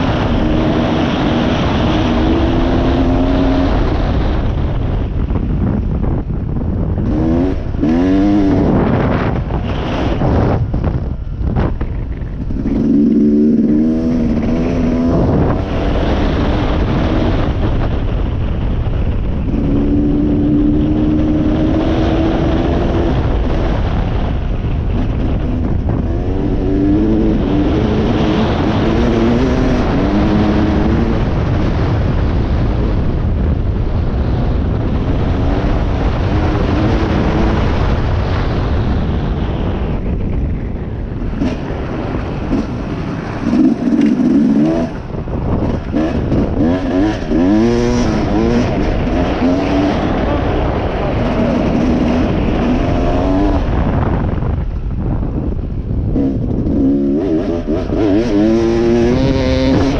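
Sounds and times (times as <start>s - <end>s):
low wind rumble on microphone: 0.0s - 59.9s
dirt bike engine revving: 7.0s - 10.6s, 11.6s - 17.9s, 25.0s - 31.9s, 41.3s - 54.2s, 56.2s - 59.9s.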